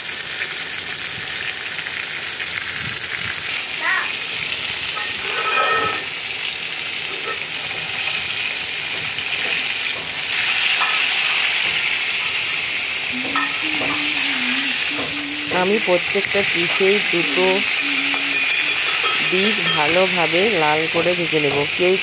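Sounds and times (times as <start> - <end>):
fish sizzling in oil: 0.0 - 22.0
metal spatula stirring in pan: 4.9 - 6.2, 15.9 - 20.4.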